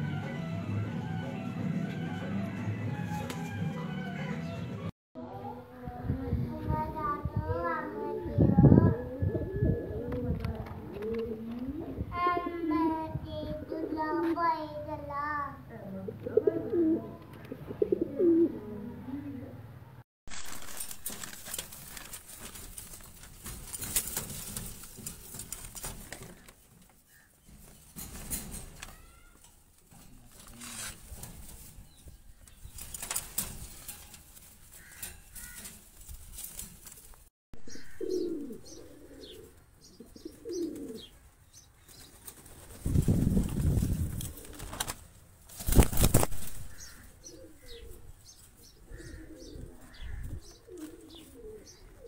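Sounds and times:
pigeons cooing: 0:08.9 - 0:12.6, 0:15.7 - 0:19.6, 0:37.7 - 0:41.2, 0:46.6 - 0:52.0
wings flapping: 0:20.3 - 0:37.3, 0:41.8 - 0:47.0.

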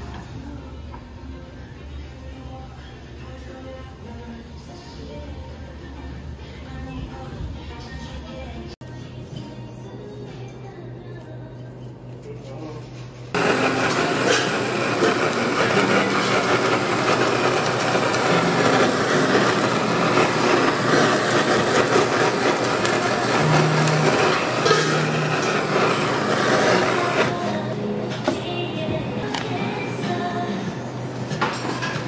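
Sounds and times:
blowtorch flame hissing: 0:13.3 - 0:28.5.

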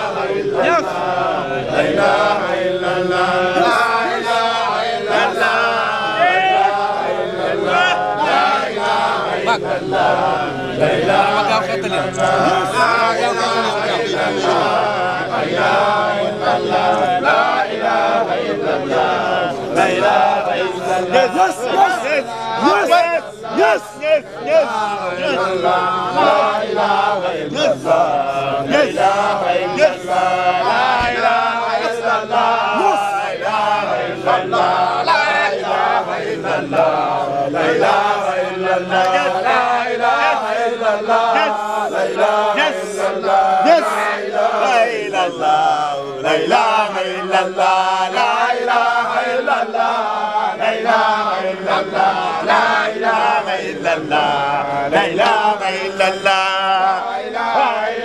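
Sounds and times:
group of voices chanting: 0:00.0 - 0:58.0.

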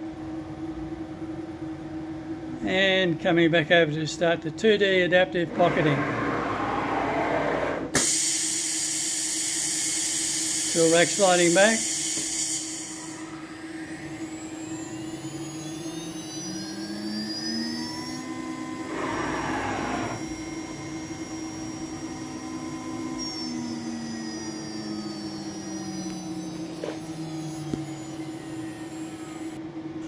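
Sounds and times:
motors whining in gliding tones: 0:05.5 - 0:08.0, 0:13.1 - 0:29.6
air hissing: 0:11.8 - 0:13.2, 0:18.8 - 0:20.2.

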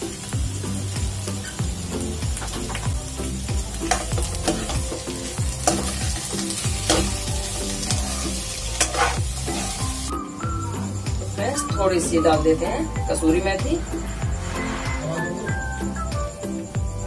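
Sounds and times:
light frying sizzle: 0:00.0 - 0:17.0
spatula scraping a pan: 0:07.9 - 0:10.1.

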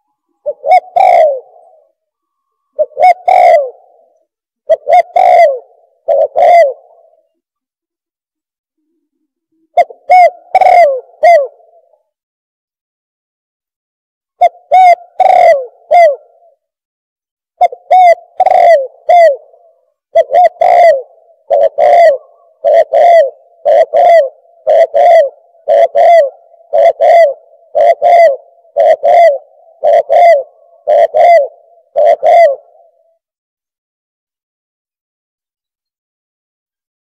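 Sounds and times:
dove cooing: 0:00.0 - 0:07.3, 0:09.6 - 0:12.0, 0:14.4 - 0:16.6, 0:17.6 - 0:33.2.

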